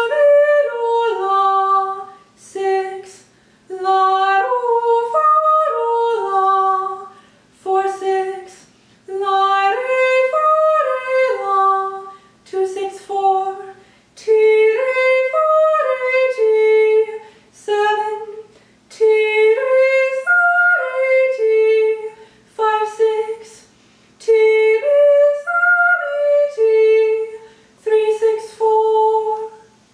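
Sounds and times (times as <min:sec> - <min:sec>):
woman singing arpeggios: 0:00.0 - 0:23.6, 0:24.2 - 0:29.7.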